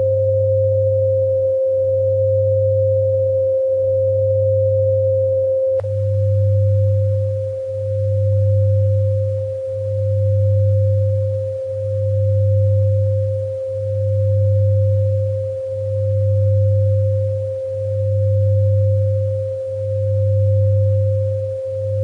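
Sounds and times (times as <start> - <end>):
low pulsing hum: 0.0 - 22.0
pure sine tone: 0.0 - 22.0.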